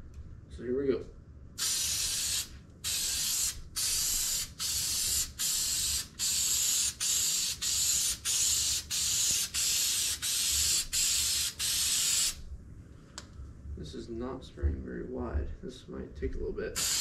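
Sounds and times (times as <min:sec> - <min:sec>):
aerosol spray hissing in bursts: 0:01.6 - 0:12.4, 0:16.8 - 0:17.0.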